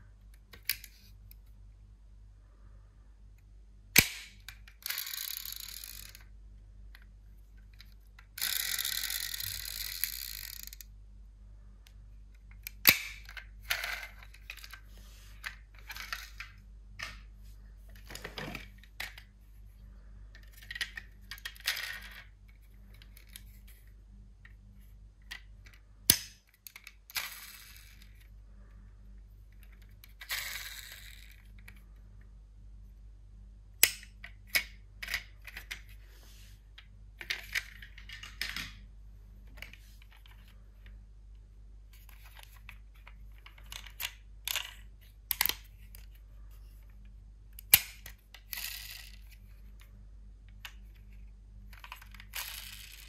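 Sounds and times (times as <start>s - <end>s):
toy cars clicking and clinking: 4.0s - 6.3s, 7.8s - 10.9s, 20.4s - 22.3s, 25.3s - 28.3s, 29.6s - 31.8s, 42.0s - 46.1s, 47.6s - 49.4s, 51.7s - 53.0s.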